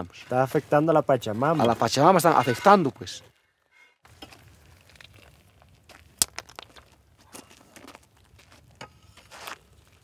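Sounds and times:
salt crust crunching: 4.1 - 10.0.

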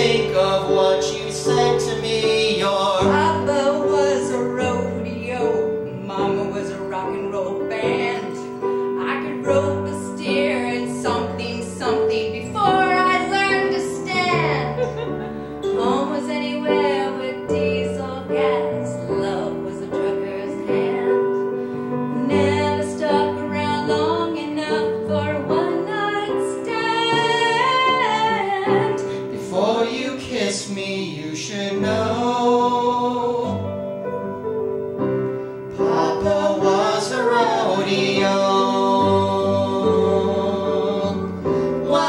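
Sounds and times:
man singing: 0.0 - 5.0, 29.2 - 33.8, 35.8 - 41.6
instrumental held chords: 0.0 - 29.4
woman singing with vibrato: 3.1 - 21.3, 22.1 - 29.0.

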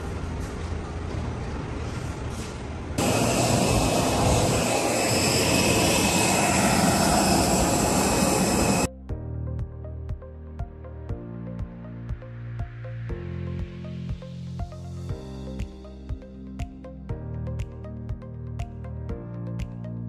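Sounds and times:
background noise: 0.0 - 3.0
jet engines whining: 3.0 - 8.9.

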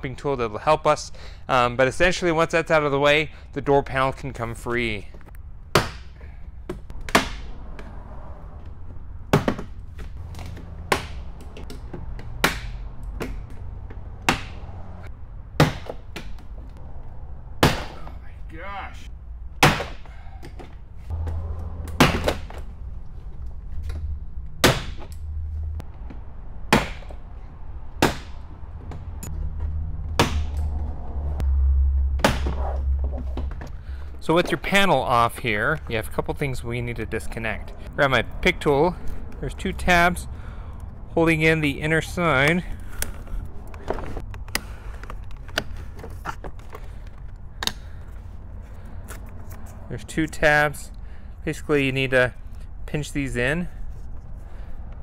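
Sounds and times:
steady low rumble: 22.6 - 51.5.

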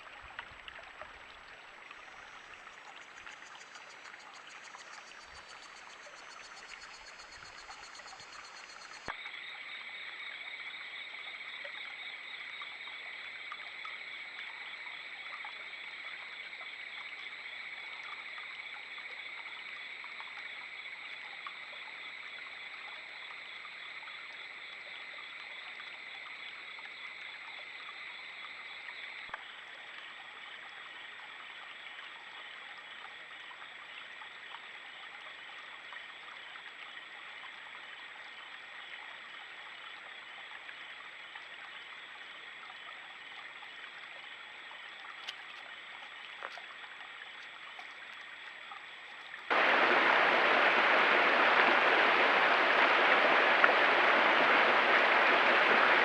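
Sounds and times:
creek water trickling: 0.0 - 56.0.

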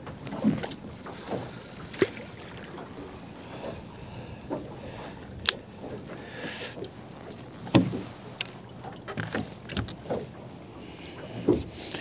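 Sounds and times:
fishing rod clicks and knocks: 5.4 - 5.7, 6.7 - 10.3.

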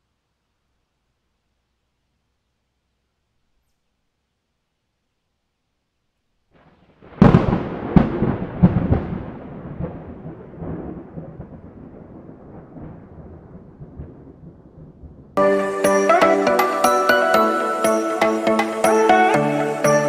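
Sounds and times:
rolling thunder rumble: 6.6 - 15.4
thunder crack: 6.6 - 15.4.

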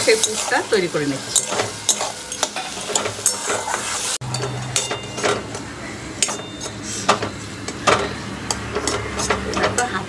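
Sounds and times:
faint sizzle: 0.0 - 4.2
metal spatula scraping pan: 0.0 - 10.0
metal clinks on pan: 4.2 - 5.6, 6.2 - 10.0.

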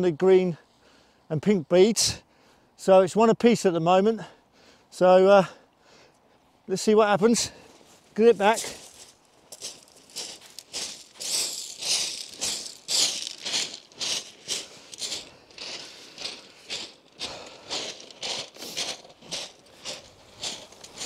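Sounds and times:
footsteps crunching on pebbles: 7.5 - 21.0.

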